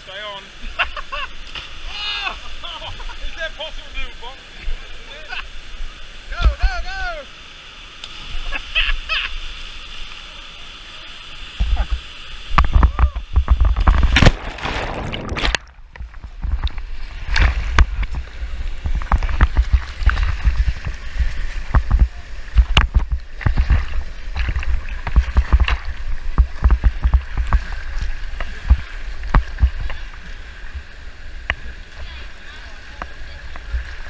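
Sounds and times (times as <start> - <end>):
rushing whitewater: 0.0 - 15.6
sharp knocks and low thumps: 12.6 - 27.8.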